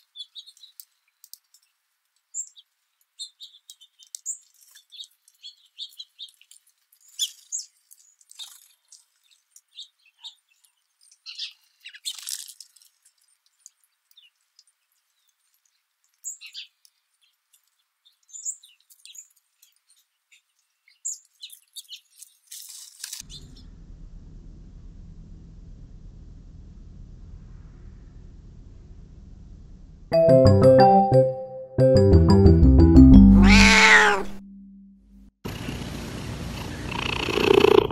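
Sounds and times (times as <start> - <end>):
songbirds chirping: 0.0 - 12.3, 13.4 - 22.5.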